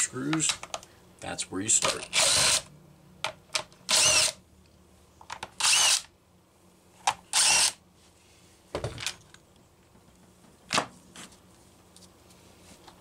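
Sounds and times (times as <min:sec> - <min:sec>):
cordless driver whining: 0:02.1 - 0:02.7, 0:03.9 - 0:04.4, 0:05.6 - 0:06.1.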